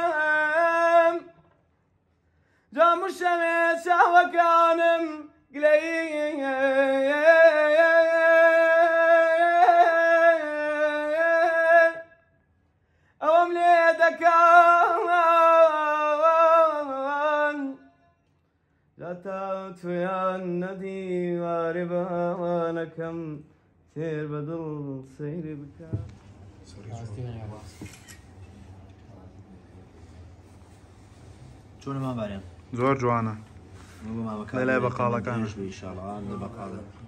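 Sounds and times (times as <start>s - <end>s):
man singing unaccompanied: 0.0s - 1.4s, 2.7s - 12.2s, 13.2s - 17.9s, 19.0s - 26.1s.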